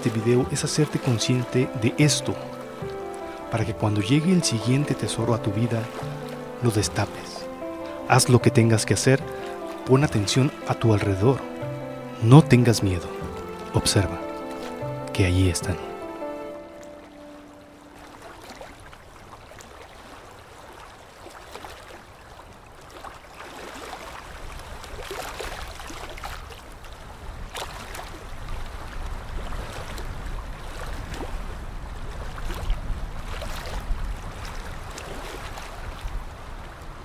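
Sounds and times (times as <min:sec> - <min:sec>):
waves sloshing and breaking: 0:00.0 - 0:37.0.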